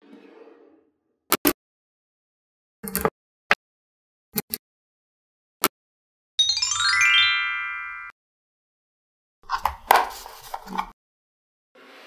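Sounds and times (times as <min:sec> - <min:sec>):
descending chime notes: 0:06.4 - 0:08.1.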